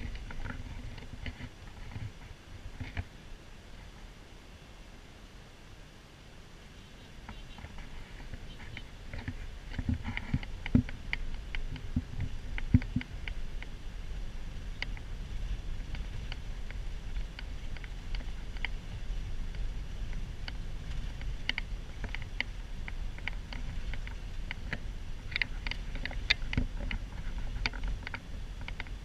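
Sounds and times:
road and engine rumble in van: 0.0s - 29.0s
light ticks and clicks: 7.2s - 13.8s, 14.5s - 29.0s.

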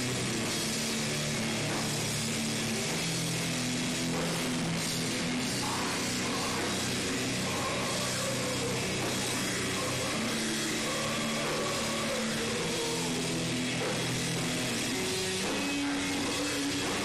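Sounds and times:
heavy metal band playing live: 0.0s - 17.0s.

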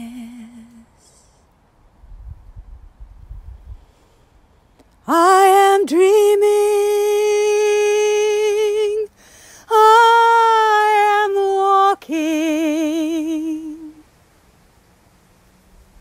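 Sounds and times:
woman singing unaccompanied: 0.0s - 1.0s, 5.0s - 14.1s
singer breathing: 0.9s - 1.6s, 3.6s - 4.8s, 9.1s - 9.7s.

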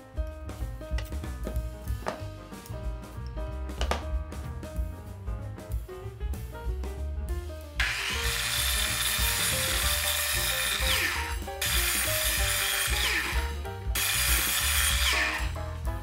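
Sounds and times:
background music: 0.0s - 16.0s
mitre saw cutting wood: 7.8s - 15.6s.

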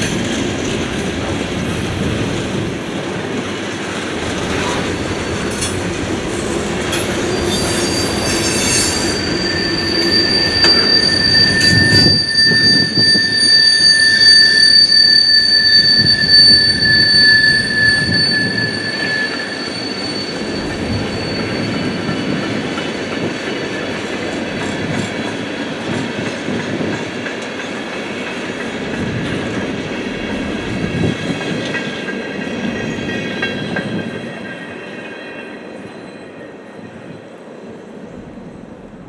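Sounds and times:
thin wheel squeal: 6.9s - 23.6s.

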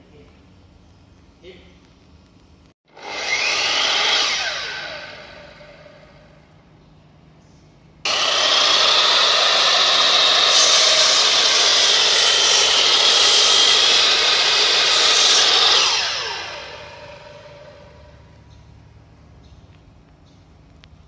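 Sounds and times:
miter saw whining: 2.9s - 6.4s, 8.1s - 18.4s
saw blade cutting timber: 3.0s - 5.6s, 8.1s - 18.2s.

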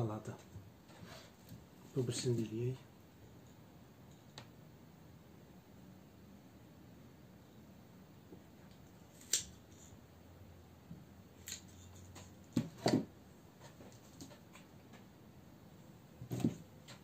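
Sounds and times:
pruning shears snipping: 9.1s - 9.6s, 11.4s - 11.8s.

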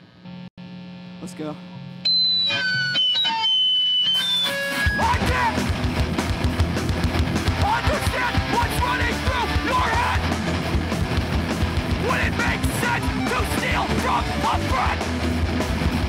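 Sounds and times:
held electric guitar tones: 1.6s - 5.8s
punk band playing live: 2.4s - 16.0s.

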